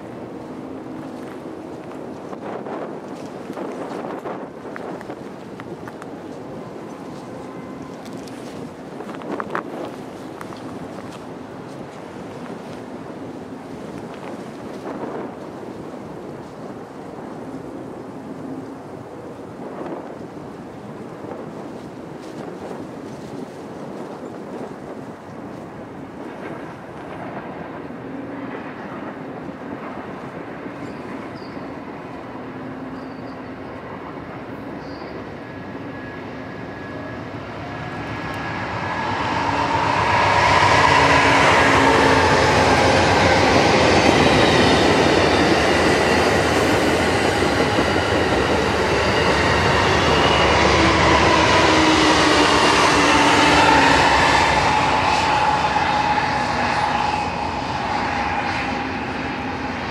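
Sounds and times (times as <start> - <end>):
passenger train passing: 0.0 - 59.9
whining tones bending in pitch: 35.4 - 59.9.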